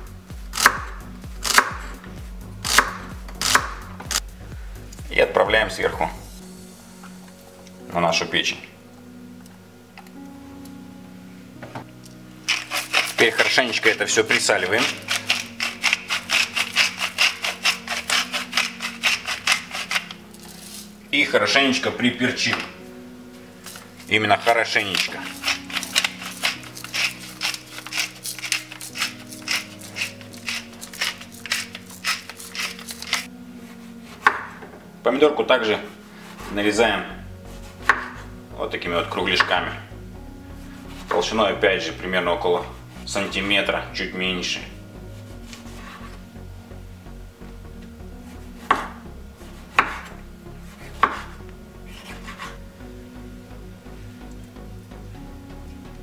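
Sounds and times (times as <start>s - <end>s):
knife slicing tomato: 0.5s - 1.8s, 2.6s - 4.2s, 12.5s - 13.6s, 14.3s - 20.9s, 24.9s - 34.6s, 37.5s - 38.3s, 48.3s - 52.6s
pepper grinder crackling: 2.7s - 4.2s, 12.5s - 20.9s, 23.6s - 33.3s
knife scraping board: 12.5s - 21.0s, 24.8s - 34.6s, 35.9s - 36.6s, 45.2s - 46.2s, 48.3s - 52.6s.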